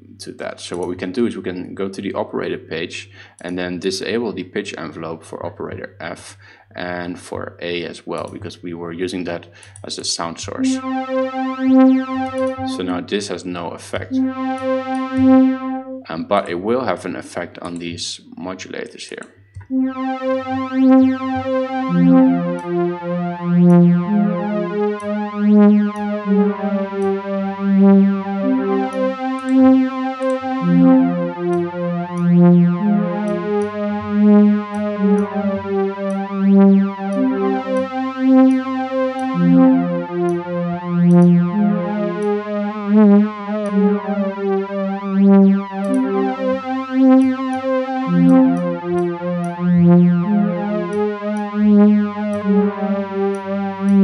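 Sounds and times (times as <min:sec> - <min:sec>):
ambient synthesizer pad: 0:10.5 - 0:16.6, 0:19.6 - 0:54.0.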